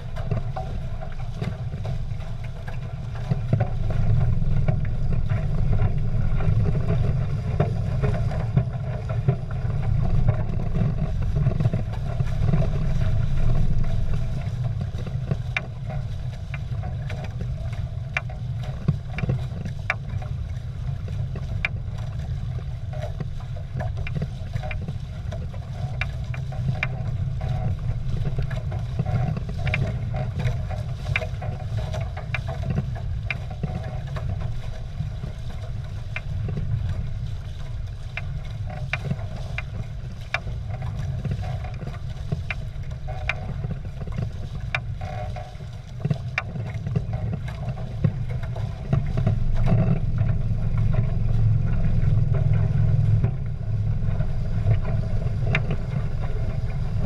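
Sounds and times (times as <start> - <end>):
steady low rumble: 0.0 - 57.0
water rushing against hulls: 0.0 - 57.0
water slaps and spray ticks: 0.0 - 57.0.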